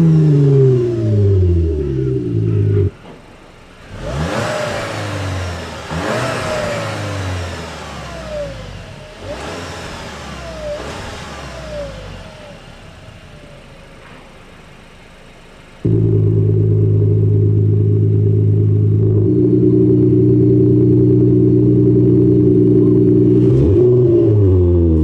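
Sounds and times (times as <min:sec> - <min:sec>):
car engine revving: 0:00.0 - 0:03.0, 0:03.7 - 0:14.1, 0:15.8 - 0:25.0
loud steady drone: 0:00.0 - 0:03.0, 0:15.8 - 0:25.0.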